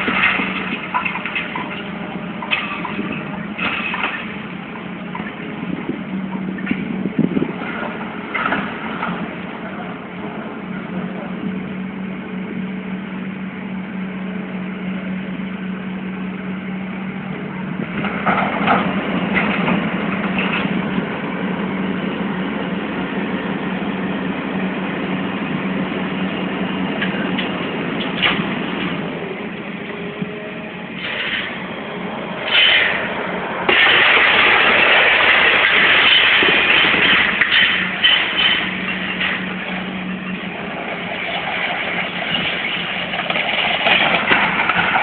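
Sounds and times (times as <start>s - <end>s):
crunching and clattering: 0.0s - 5.4s, 32.5s - 45.0s
diesel machinery running: 0.0s - 45.0s
loud steady rushing noise: 17.0s - 43.2s.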